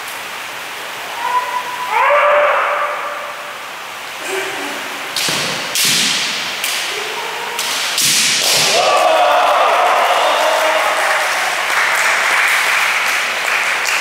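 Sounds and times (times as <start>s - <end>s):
person shouting: 1.1s - 3.1s, 6.9s - 7.6s
bamboo swords striking: 5.2s - 8.9s.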